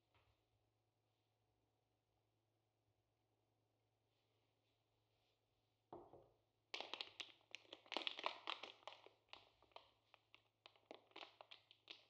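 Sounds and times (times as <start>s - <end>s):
plastic bags crinkling: 6.8s - 12.0s.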